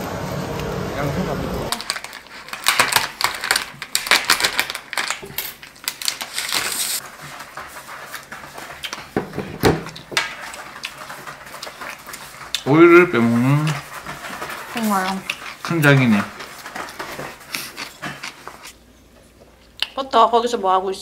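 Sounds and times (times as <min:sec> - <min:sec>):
chopsticks and packaging clicking: 0:01.7 - 0:07.0
plastic film crinkling: 0:01.7 - 0:09.2, 0:09.9 - 0:18.8.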